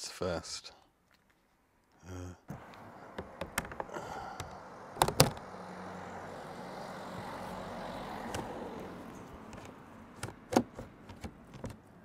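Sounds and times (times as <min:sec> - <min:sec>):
outdoor background hum: 0:01.0 - 0:12.0
plastic knocks and taps: 0:02.5 - 0:05.4, 0:09.5 - 0:11.8.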